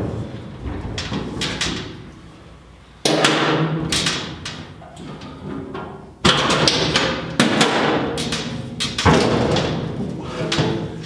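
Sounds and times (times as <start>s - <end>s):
metal tank knocking and scraping: 0.0s - 2.1s.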